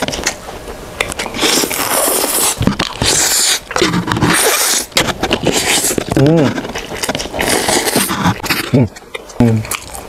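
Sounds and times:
wet chewing: 0.0s - 10.0s
hissing noodle slurps: 1.3s - 6.1s.

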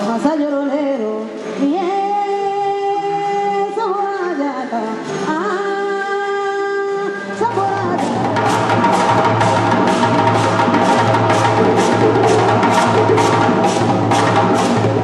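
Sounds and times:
drums: 7.4s - 15.0s.

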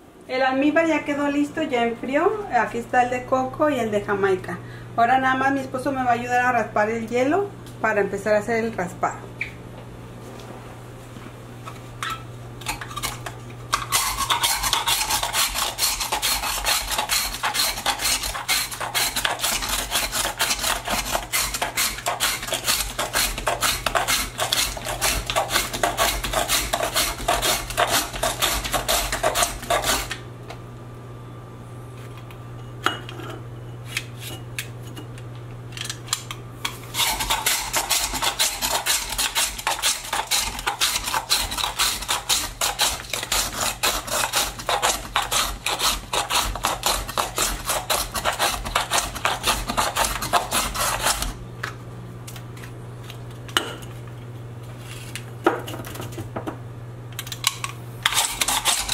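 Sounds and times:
metal ice shaver scraping ice: 12.7s - 30.2s, 36.9s - 51.4s, 58.0s - 58.9s.

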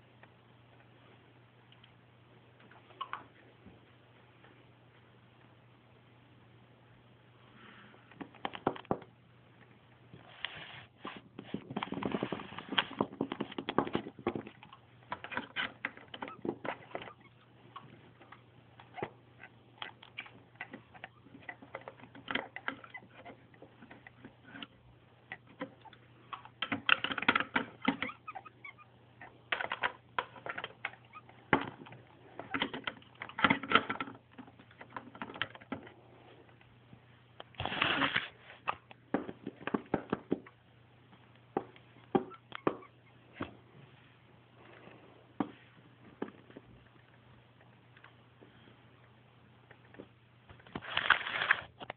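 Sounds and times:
faint low hum: 0.0s - 51.9s
plastic toys clicking and tapping: 19.8s - 28.2s, 29.5s - 35.9s.

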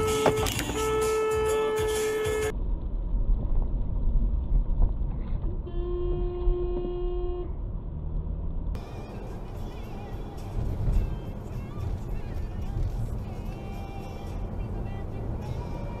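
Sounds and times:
car horn: 0.0s - 2.5s, 5.6s - 7.6s
lower-pitched car horn: 0.0s - 2.5s, 5.6s - 7.6s
road noise: 0.0s - 16.0s.

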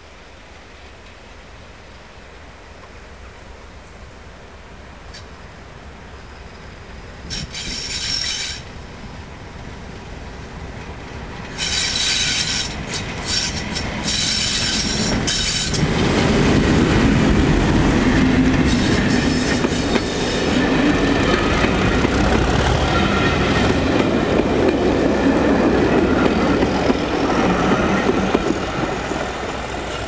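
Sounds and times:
diesel locomotive passing: 3.6s - 30.0s
train wheels clickety-clack: 7.3s - 8.8s, 10.7s - 30.0s.

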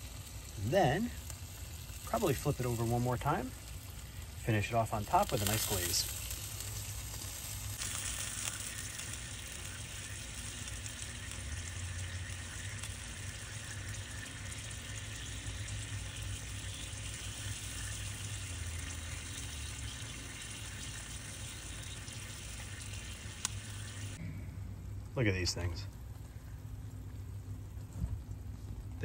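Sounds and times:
fat crackling over coals: 0.0s - 24.2s, 25.0s - 29.0s
food sizzling on grill: 0.0s - 24.2s.

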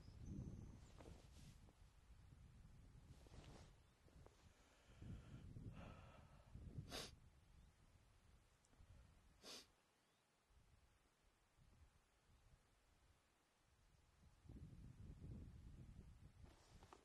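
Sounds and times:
short breathy puffs: 3.3s - 7.2s, 9.4s - 9.7s.

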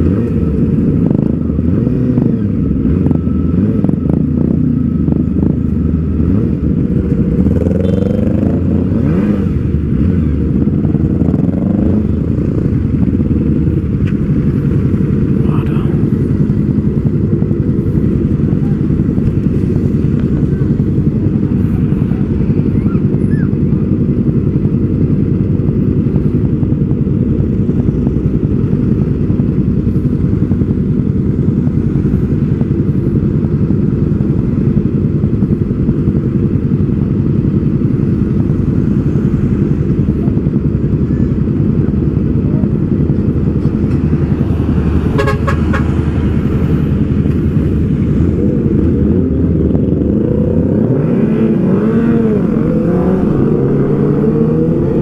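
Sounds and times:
motorcycle engine idling and revving: 0.0s - 55.0s
car horn toot: 45.1s - 45.9s.

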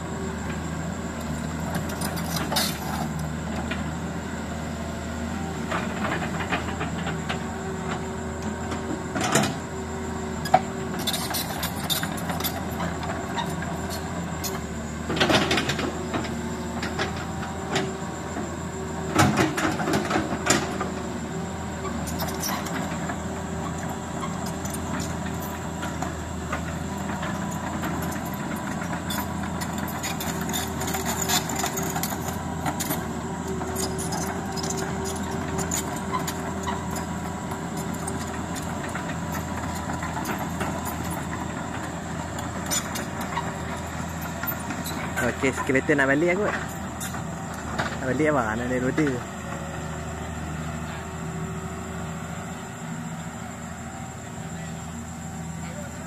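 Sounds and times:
diesel machinery running: 0.0s - 56.0s.

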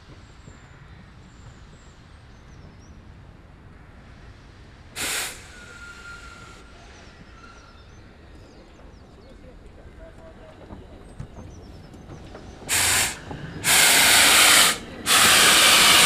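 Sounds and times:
steam locomotive hissing steam: 4.1s - 8.2s, 12.6s - 16.0s
birds chirping: 6.0s - 16.0s.

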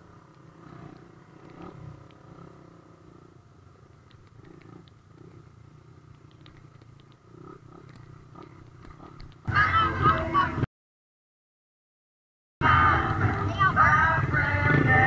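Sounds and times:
motorcycle engines idling: 0.0s - 10.6s, 12.6s - 15.0s
faint clicks: 3.9s - 5.5s, 6.1s - 9.5s.

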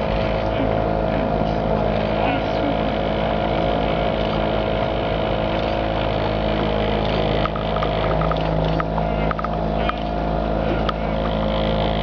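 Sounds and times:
engine droning steadily: 0.0s - 12.0s
light ticks and rattles: 7.1s - 10.2s.

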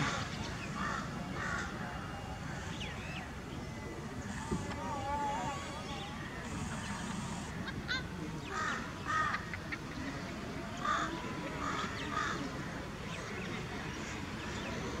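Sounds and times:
crows cawing: 0.0s - 1.7s, 8.5s - 9.5s, 10.8s - 12.4s
low outdoor background noise: 0.0s - 15.0s.

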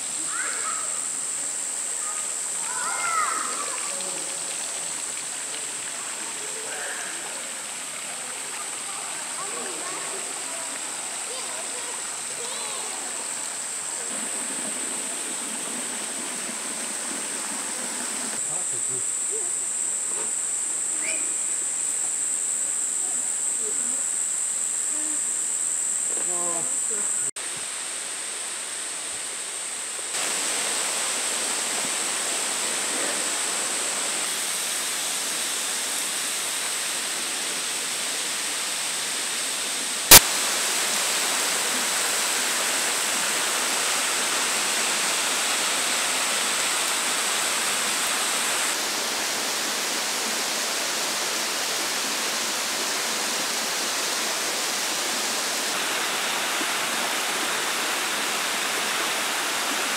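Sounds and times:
creek and waterfall rushing: 0.0s - 22.6s, 25.7s - 59.9s
thin high steady tone: 18.4s - 27.3s.

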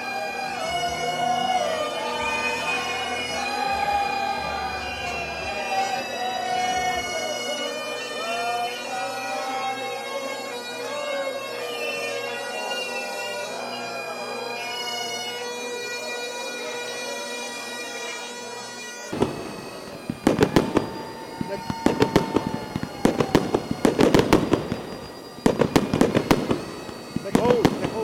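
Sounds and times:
bagpipes playing a tune: 0.0s - 28.0s
fireworks bangs: 19.1s - 28.0s.

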